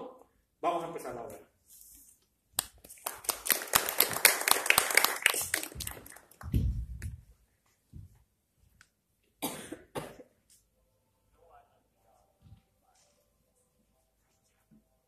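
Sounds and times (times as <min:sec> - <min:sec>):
small audience applauding: 0:02.6 - 0:06.6
dull low thud: 0:06.4 - 0:07.2.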